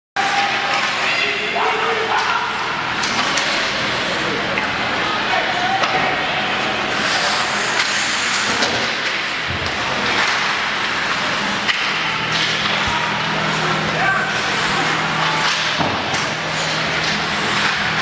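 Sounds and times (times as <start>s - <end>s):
clacks of sticks and puck: 0.3s - 1.3s, 2.1s - 3.7s, 7.7s - 13.0s, 15.2s - 18.0s
skates scraping ice: 6.4s - 11.7s.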